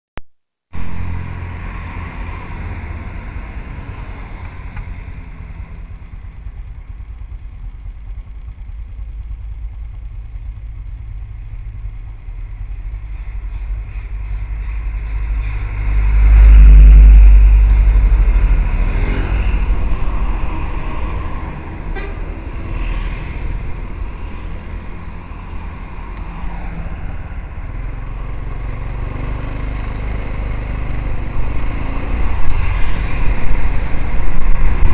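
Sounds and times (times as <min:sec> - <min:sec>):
passing road traffic: 0:00.7 - 0:34.9
truck passing close: 0:12.6 - 0:34.9.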